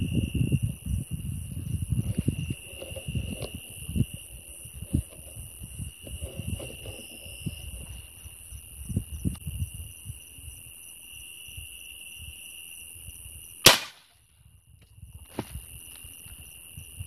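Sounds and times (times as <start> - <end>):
night insects chorus: 0.0 - 17.0
rustling near microphone: 1.5 - 9.4.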